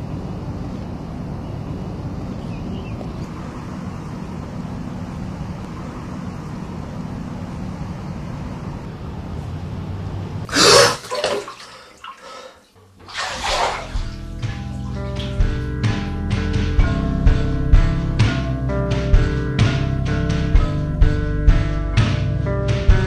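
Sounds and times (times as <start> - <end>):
wind rumble on microphone: 0.0 - 6.6
water splashing in bathtub: 10.5 - 16.0.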